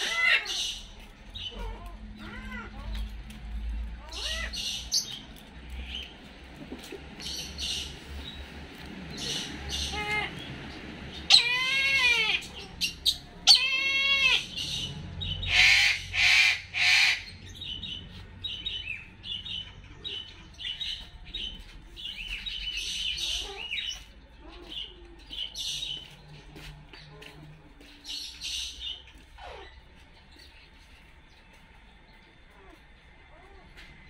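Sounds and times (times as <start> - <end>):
harsh bird cries: 0.0 - 3.1, 3.9 - 6.1, 9.1 - 26.2.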